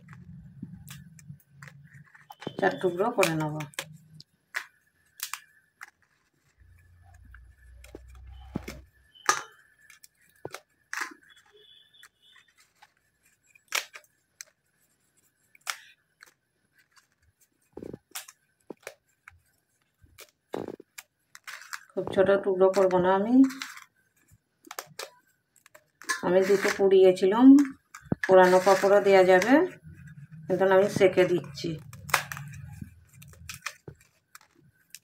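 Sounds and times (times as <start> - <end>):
papad snapping with sharp cracks: 4.5 - 5.9, 13.7 - 14.5, 24.6 - 26.7, 31.9 - 35.0.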